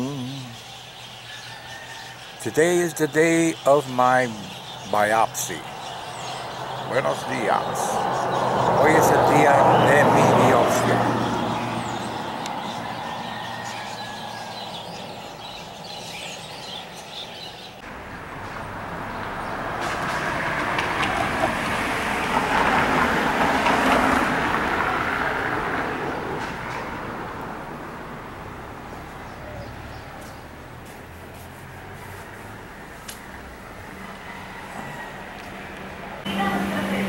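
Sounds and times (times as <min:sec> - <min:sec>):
birds chirping faintly: 0:00.0 - 0:17.9
car passing: 0:04.0 - 0:37.0.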